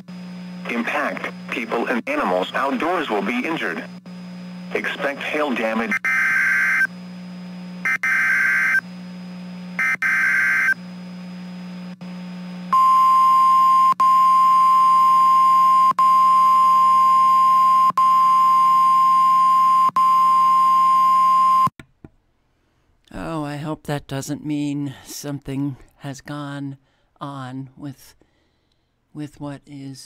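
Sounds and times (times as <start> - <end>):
loud steady warning alarm tone: 0.0 - 11.1
screechy digital bursts: 9.8 - 10.8.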